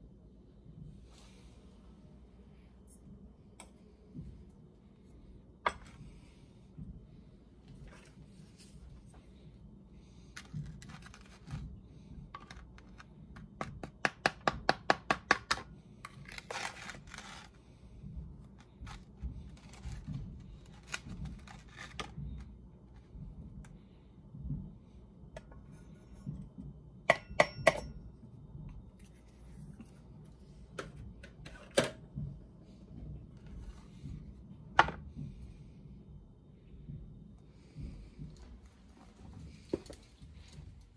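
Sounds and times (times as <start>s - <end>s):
plastic scoop scraping coffee: 16.1s - 17.6s.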